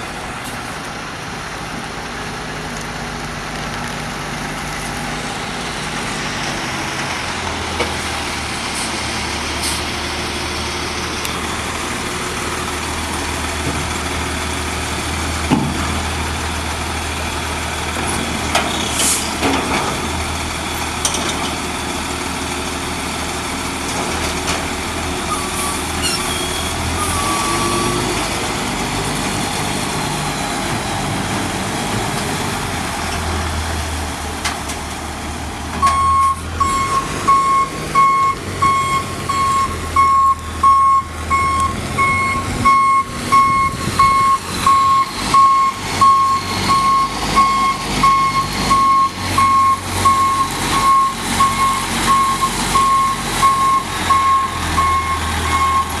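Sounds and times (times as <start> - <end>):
diesel truck engine running: 0.0 - 56.0
truck backup alarm beeping: 25.2 - 28.2, 35.8 - 56.0.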